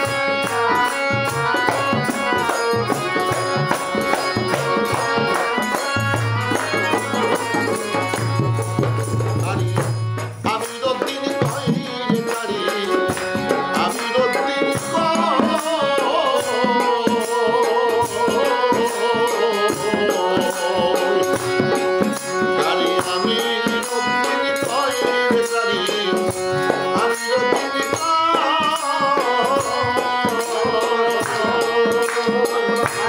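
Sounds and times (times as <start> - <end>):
man singing: 0.0 - 8.4, 9.1 - 33.0
hand drum beat: 0.0 - 14.0
jingling shaken percussion: 0.0 - 33.0.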